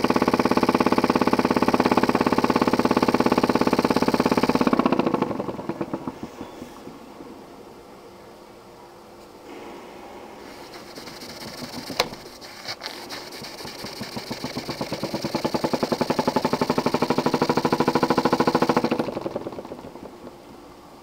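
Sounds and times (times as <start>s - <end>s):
steam engine knocking: 0.0s - 6.6s, 10.6s - 20.3s
sharp click: 11.3s - 15.0s.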